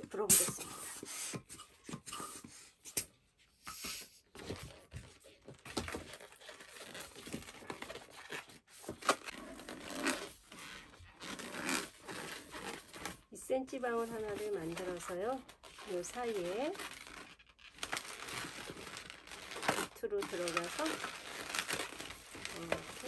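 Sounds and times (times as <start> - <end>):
balloon rubbing and scraping: 0.0 - 3.0, 3.6 - 23.0
hand pump inflating balloon: 0.0 - 4.2.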